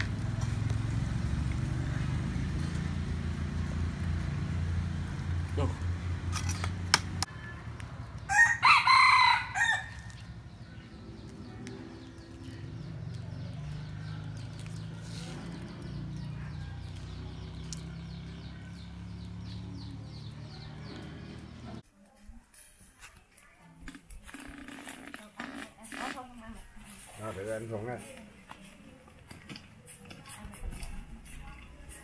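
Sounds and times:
rooster crowing: 8.3s - 10.1s.

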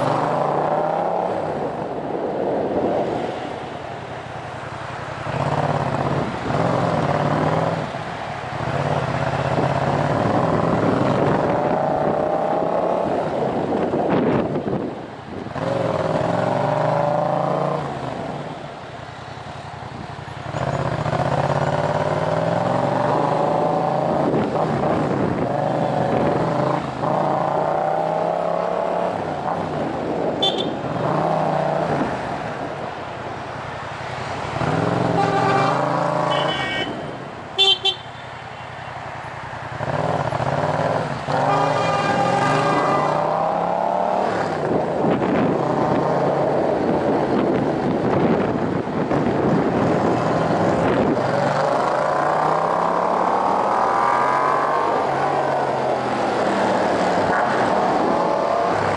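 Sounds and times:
motorcycle engine revving: 20.4s - 29.8s, 39.8s - 46.7s, 49.4s - 58.9s.

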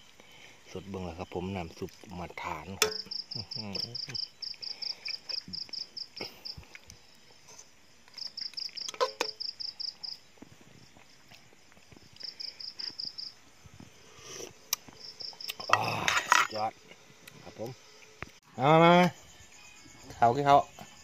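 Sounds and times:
insect chirping: 0.0s - 21.0s
spoon clinking against pot: 2.8s - 3.1s.

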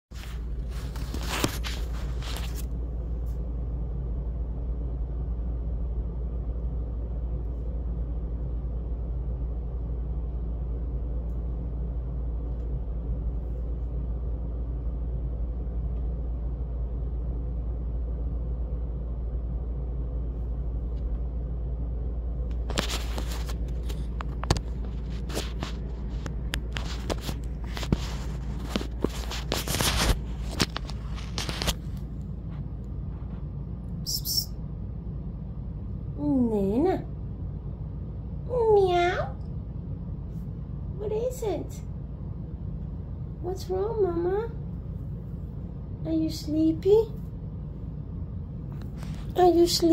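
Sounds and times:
steady low hum: 0.0s - 49.9s
rustling: 0.1s - 3.5s, 22.4s - 33.6s.

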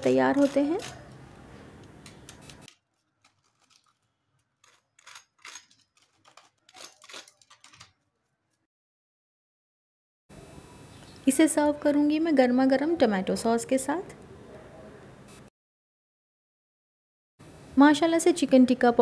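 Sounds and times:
crust crunching under fork: 2.1s - 8.3s.

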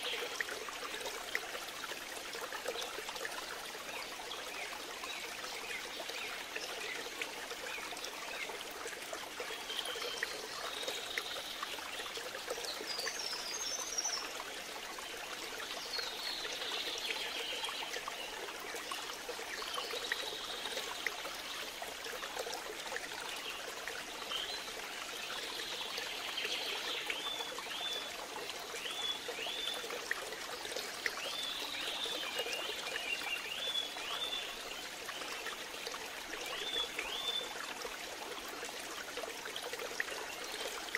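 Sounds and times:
flowing water: 0.0s - 40.9s.

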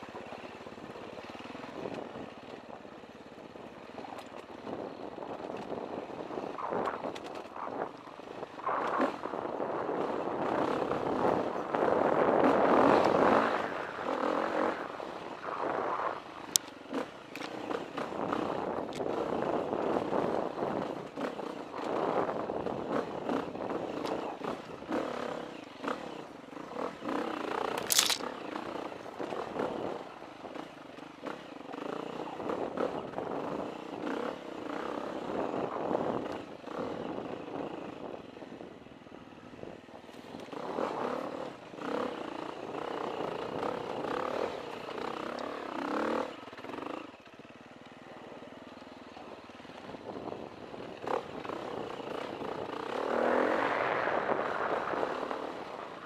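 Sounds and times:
dirt bike engine: 0.0s - 39.5s, 40.1s - 56.0s
sharp clicks: 27.7s - 28.3s.

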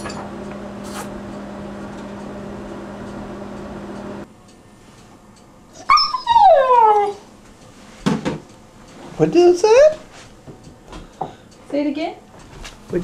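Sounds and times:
steady hum: 0.0s - 5.7s
puppy yipping: 5.8s - 7.2s
puppy howling: 5.8s - 7.3s.

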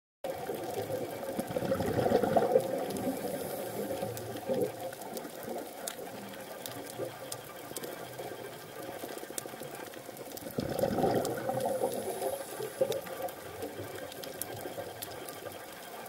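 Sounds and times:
faint clicks: 0.3s - 16.0s
faint steady hum: 0.3s - 16.0s
underwater exhaled breath bubbling: 0.7s - 5.8s, 10.4s - 13.5s.

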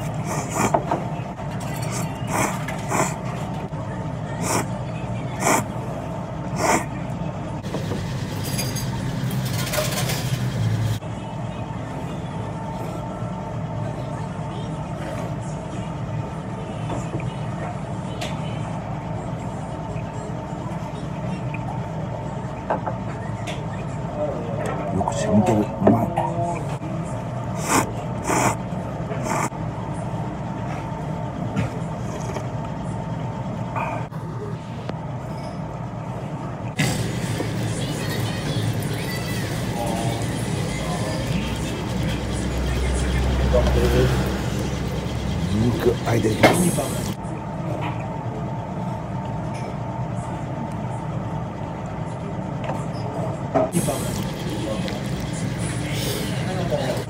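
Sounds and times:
slurping noodles: 0.1s - 0.7s, 1.9s - 3.3s, 4.4s - 4.7s, 5.4s - 5.8s, 6.6s - 6.9s, 27.5s - 28.6s, 29.2s - 29.5s.

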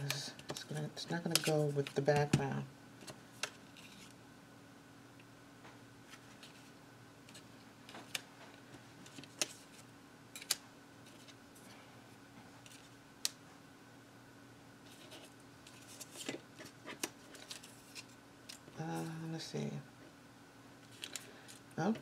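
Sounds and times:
steady low hum: 0.0s - 22.0s
paper rustling: 6.1s - 8.2s, 14.8s - 19.1s, 20.9s - 21.6s.

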